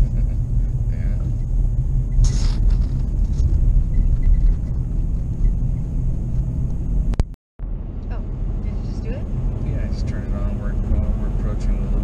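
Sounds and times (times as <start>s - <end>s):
car engine and tyre rumble: 0.0s - 12.0s
short hiss: 2.2s - 2.7s.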